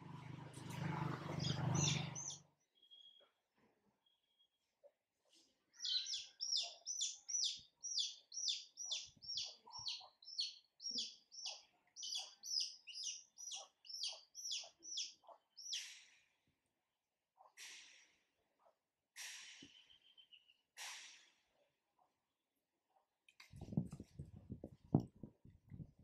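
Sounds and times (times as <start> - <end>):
bird chirping rapidly: 1.4 - 3.2, 5.8 - 15.9.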